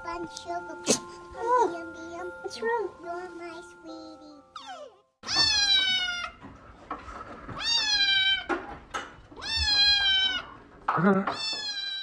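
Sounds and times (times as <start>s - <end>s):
kitten meowing: 9.4s - 10.5s.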